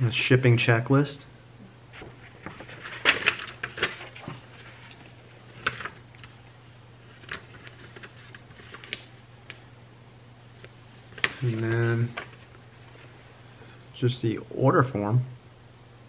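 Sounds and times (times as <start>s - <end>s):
faint low hum: 0.0s - 16.0s
paper rustling and crinkling: 1.9s - 9.6s, 10.6s - 13.3s.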